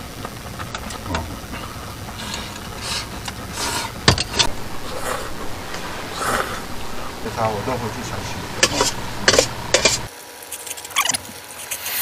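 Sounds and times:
steady low hum: 0.0s - 10.1s
ladle clinking on bowls: 8.0s - 10.1s.

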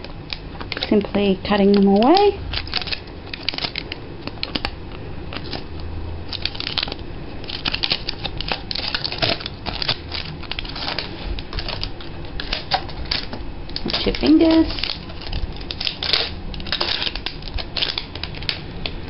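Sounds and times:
scissors snipping plastic: 0.0s - 4.8s, 6.3s - 19.0s.

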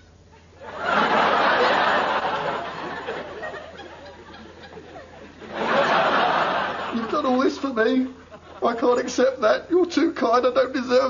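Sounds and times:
audience laughter: 0.6s - 8.8s.

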